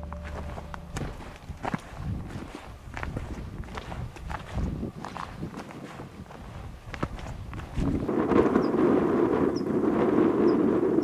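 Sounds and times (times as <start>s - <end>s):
boots crunching on gravel path: 0.0s - 8.1s.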